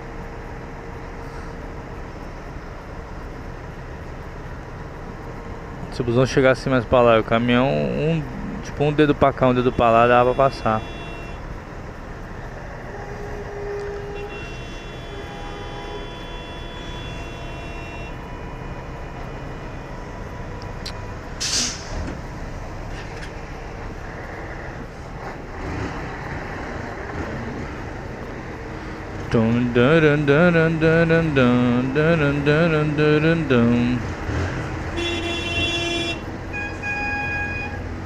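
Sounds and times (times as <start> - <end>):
bus and truck engines idling: 0.0 - 38.0
air brake hiss: 1.2 - 1.6, 21.4 - 22.1.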